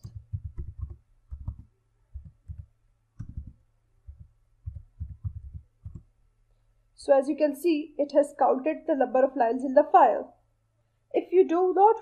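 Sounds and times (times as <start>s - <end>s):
keyboard keystrokes: 0.0s - 6.1s
faint low hum: 0.0s - 12.0s.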